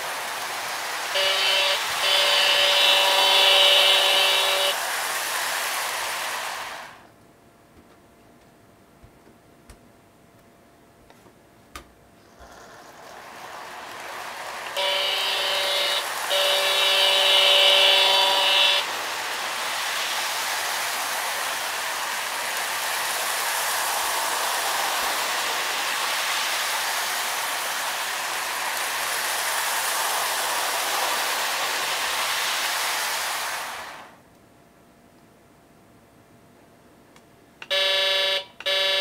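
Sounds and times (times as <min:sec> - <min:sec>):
model train running on track: 0:00.0 - 0:07.0, 0:12.3 - 0:34.1
model train horn: 0:01.1 - 0:04.8, 0:14.6 - 0:19.6, 0:37.6 - 0:39.0.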